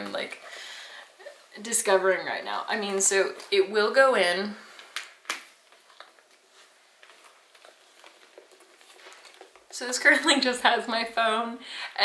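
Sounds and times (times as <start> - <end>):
handbag rustling: 5.7 - 9.8.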